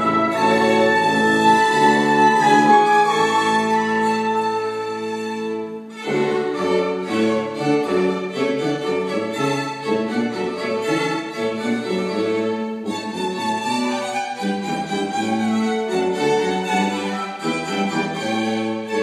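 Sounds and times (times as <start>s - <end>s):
chamber ensemble of strings and tuba: 0.0s - 19.0s.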